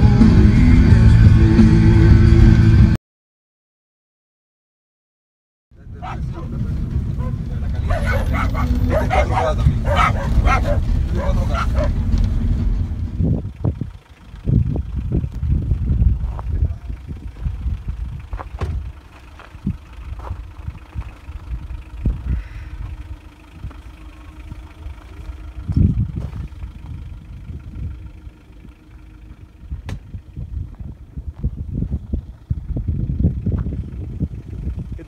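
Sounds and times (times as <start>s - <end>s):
wind buffeting microphone: 5.9s - 19.0s, 19.6s - 23.8s, 25.0s - 35.0s.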